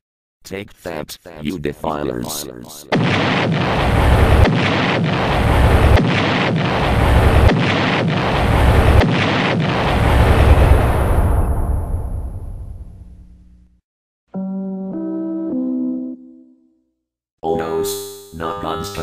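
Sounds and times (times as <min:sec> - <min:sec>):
loud deep explosion blast: 0:02.9 - 0:13.2.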